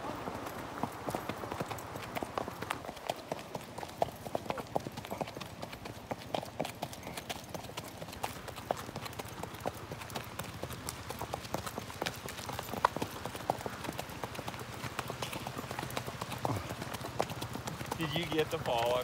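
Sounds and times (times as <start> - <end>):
horse hooves on dirt road: 0.0 - 19.0.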